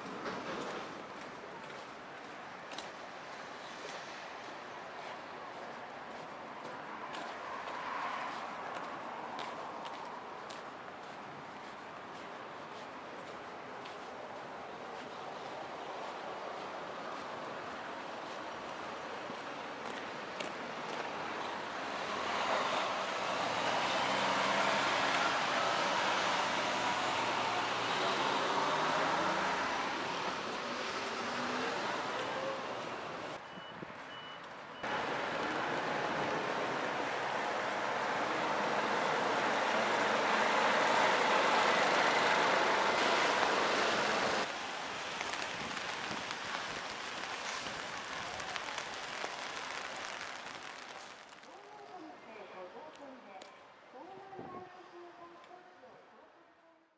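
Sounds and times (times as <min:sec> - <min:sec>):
road traffic passing: 0:00.0 - 0:54.0
heavy truck approaching: 0:34.8 - 0:44.6
raindrop ticks: 0:44.5 - 0:52.0.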